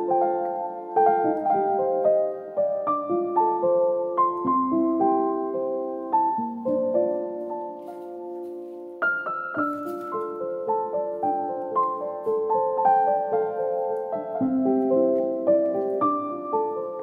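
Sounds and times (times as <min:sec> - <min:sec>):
gentle piano music: 0:00.0 - 0:17.0.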